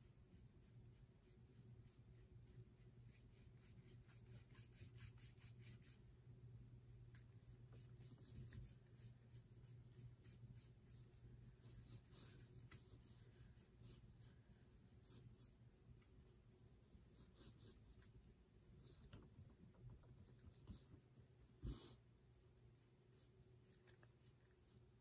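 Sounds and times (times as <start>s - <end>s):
low steady hum: 0.0s - 25.0s
sponge brush swishing on metal tray: 6.7s - 19.1s, 20.4s - 25.0s.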